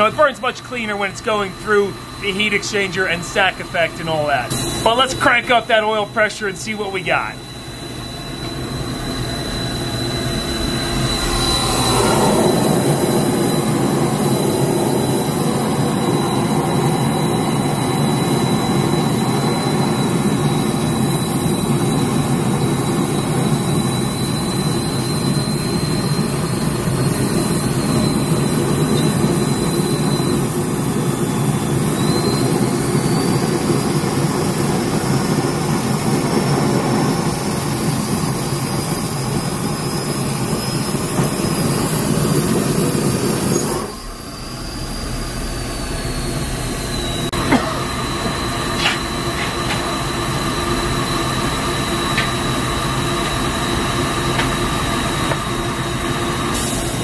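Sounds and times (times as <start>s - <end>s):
thin high whistle: 0.0s - 35.5s, 36.2s - 57.0s
oil burner rushing roar: 0.0s - 57.0s.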